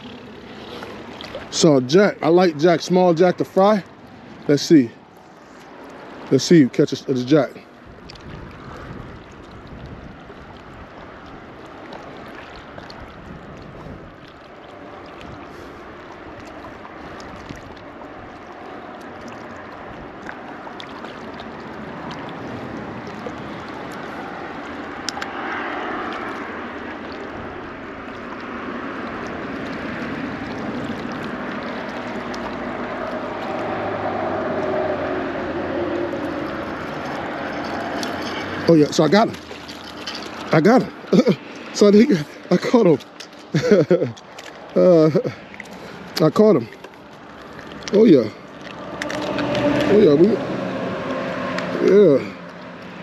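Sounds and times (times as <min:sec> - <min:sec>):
waves lapping against rocks: 0:00.0 - 0:53.0
wind on microphone: 0:07.8 - 0:11.6, 0:12.6 - 0:14.4.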